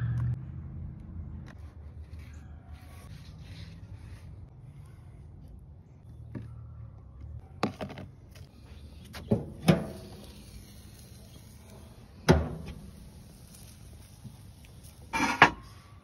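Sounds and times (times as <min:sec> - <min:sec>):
metal grill lid banging shut: 0:12.3 - 0:12.8, 0:15.1 - 0:15.6.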